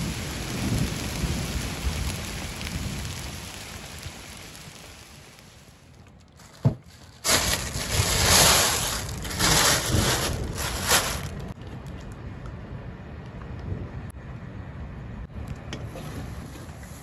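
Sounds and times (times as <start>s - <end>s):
plastic bag crinkling: 6.0s - 12.0s
thump: 6.6s - 6.8s.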